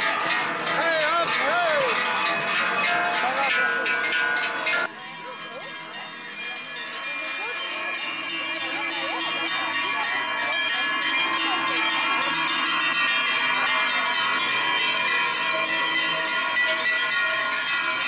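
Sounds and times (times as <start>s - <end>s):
cowbells clanging: 0.0s - 18.0s.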